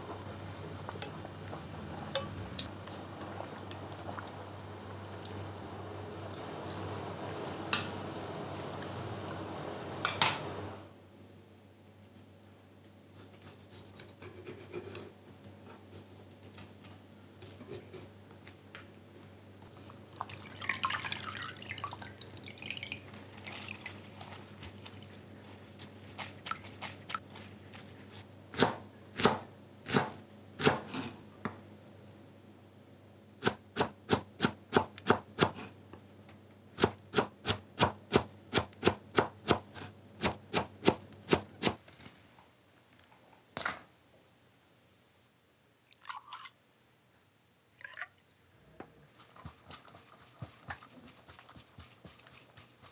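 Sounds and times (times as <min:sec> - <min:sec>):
water dripping: 0:20.1 - 0:24.0
wet greens squelching: 0:20.3 - 0:28.2
knife chopping on board: 0:28.6 - 0:31.0.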